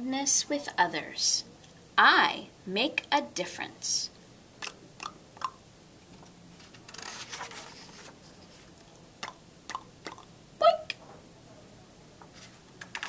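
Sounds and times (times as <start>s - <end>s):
paper pages rustling: 6.6s - 8.7s.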